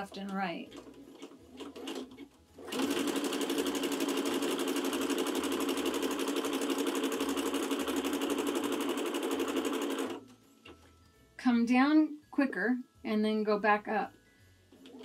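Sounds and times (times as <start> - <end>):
sewing machine stitching: 0.0 - 10.2.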